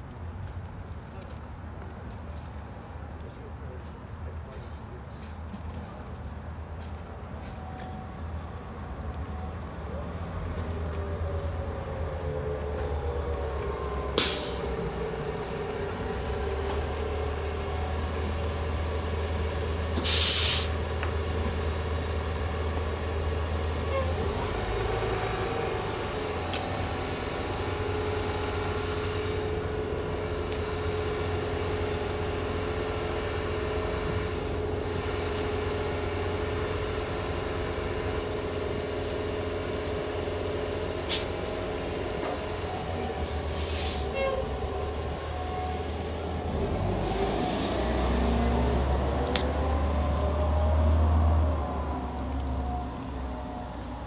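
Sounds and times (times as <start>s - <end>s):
bus engine idling: 5.8s - 54.0s
air brake hissing: 14.2s - 14.8s, 20.0s - 20.8s, 41.1s - 41.3s, 43.2s - 44.2s.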